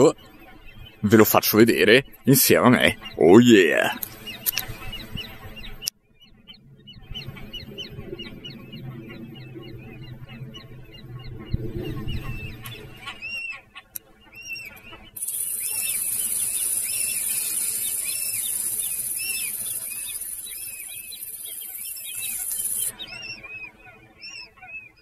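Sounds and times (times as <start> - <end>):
birds chirping: 0.0 - 25.0
steady high-pitched hiss: 15.2 - 22.9.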